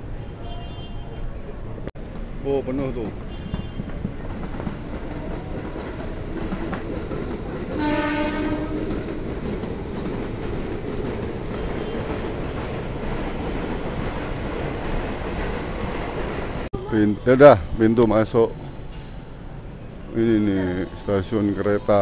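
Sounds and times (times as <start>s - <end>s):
electric train rumbling: 1.4s - 22.0s
train horn blast: 7.8s - 9.0s.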